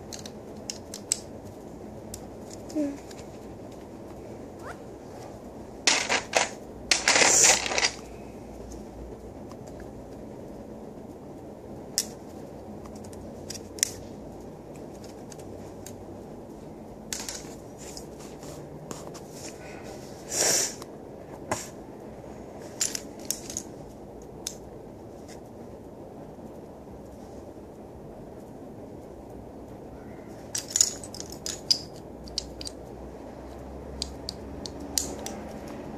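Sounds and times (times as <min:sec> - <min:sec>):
steady low hum: 0:00.0 - 0:35.9
plastic bricks clicking and clattering: 0:05.9 - 0:08.1, 0:30.5 - 0:32.8.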